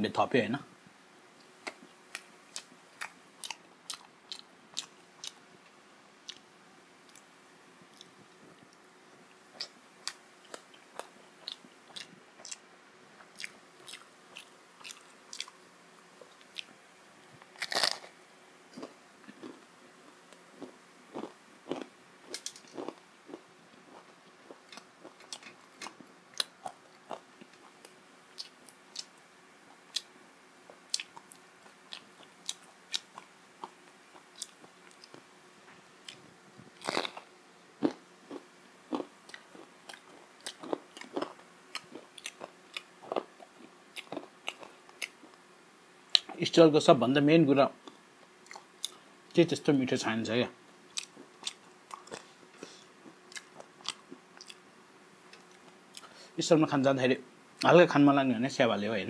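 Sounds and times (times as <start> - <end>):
crunchy chewing: 1.4 - 5.4, 6.2 - 7.3, 7.9 - 8.8, 9.5 - 12.6, 13.2 - 16.8, 17.4 - 45.4, 47.8 - 49.0, 50.9 - 54.6, 55.3 - 56.2
crunching bites: 17.5 - 18.2, 18.8 - 29.1, 36.8 - 45.4.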